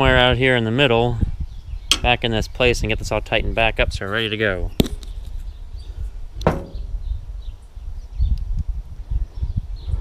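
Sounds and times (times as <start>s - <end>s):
sharp metal clank: 1.9s - 2.1s, 6.4s - 6.9s.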